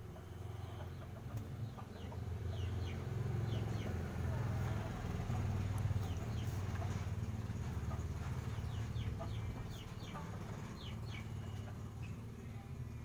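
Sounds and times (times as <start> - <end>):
chickens chirping: 0.0 - 12.8
steady low hum: 0.0 - 13.0.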